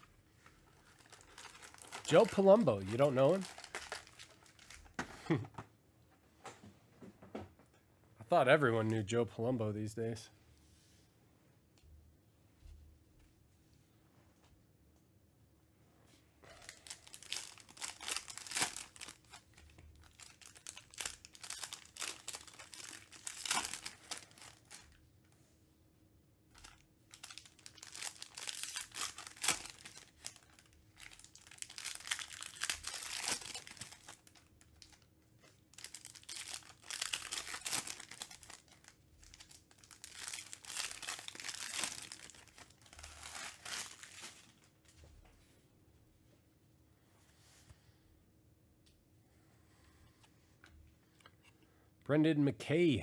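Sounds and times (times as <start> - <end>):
foil wrappers tearing and crinkling: 0.8 - 5.0, 16.6 - 24.9, 26.6 - 44.5.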